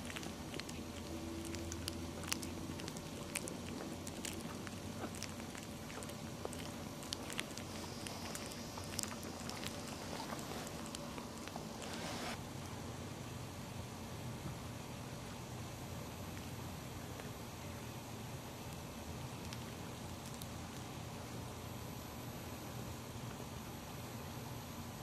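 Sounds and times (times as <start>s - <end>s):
puppies rustling and clicking: 0.0s - 12.0s
low steady hum: 0.0s - 25.0s.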